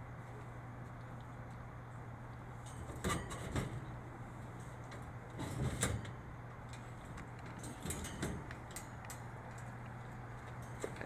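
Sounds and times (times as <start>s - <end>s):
steady low hum: 0.0s - 11.0s
metal crate clanking and rattling: 2.7s - 3.9s, 7.5s - 8.9s.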